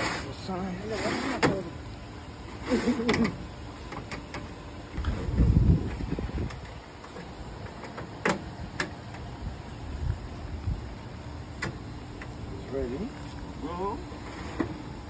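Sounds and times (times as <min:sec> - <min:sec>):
low rumble: 0:05.0 - 0:06.7.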